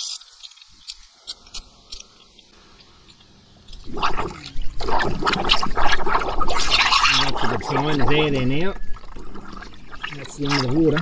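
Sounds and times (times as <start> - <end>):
water bubbling: 3.7 - 11.0.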